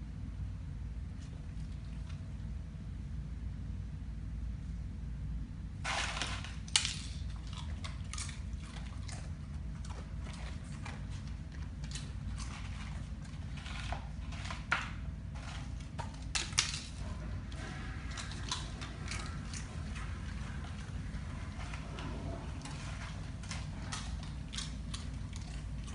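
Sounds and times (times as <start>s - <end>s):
low steady hum: 0.0s - 25.9s
dog crunching chips: 5.8s - 25.9s.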